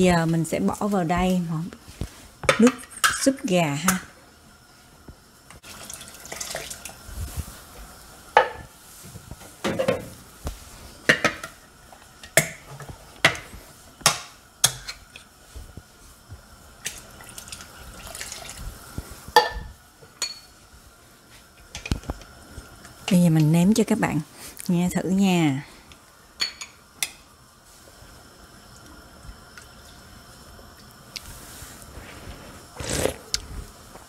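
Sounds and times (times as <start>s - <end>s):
liquid pouring into a pot: 5.6s - 7.1s, 16.8s - 19.5s.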